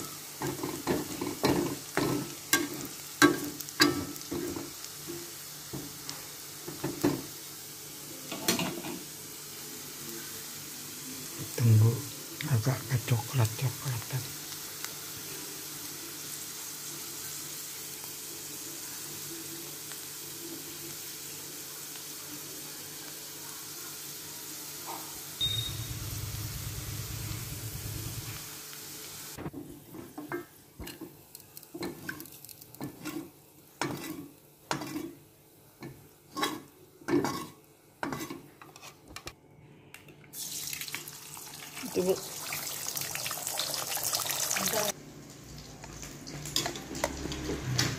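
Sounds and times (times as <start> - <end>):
aromatics sizzling in hot oil: 0.0 - 38.6, 40.3 - 47.9
low hum: 25.4 - 28.4.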